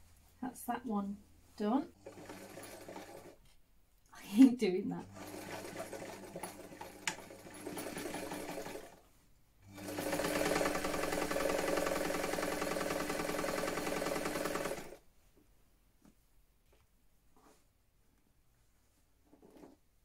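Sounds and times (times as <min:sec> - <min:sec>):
electric sewing machine stitching: 0:01.9 - 0:03.4, 0:05.0 - 0:09.0, 0:09.7 - 0:15.0.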